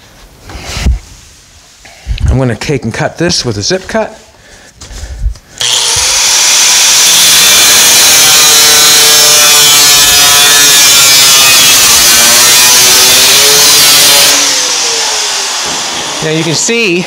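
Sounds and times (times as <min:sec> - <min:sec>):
cut-off wheel grinding metal: 0:05.6 - 0:16.7.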